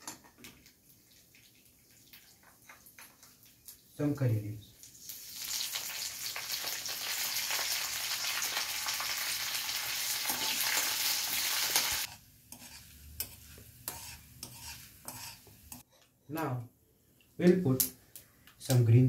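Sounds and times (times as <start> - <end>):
spices sizzling in hot oil: 0.1 - 4.0, 4.6 - 15.8
metal spatula scraping pan: 12.0 - 15.8.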